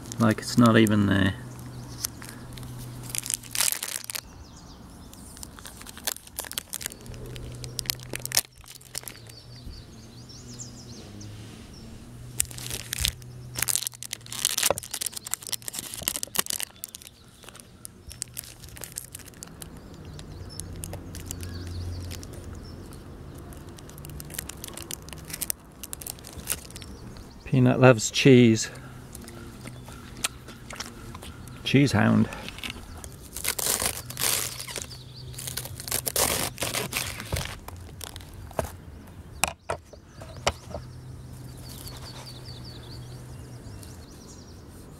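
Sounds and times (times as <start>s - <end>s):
plastic wrapper crinkling and tearing: 1.9s - 4.3s, 5.1s - 9.4s, 12.4s - 27.2s, 32.4s - 38.8s.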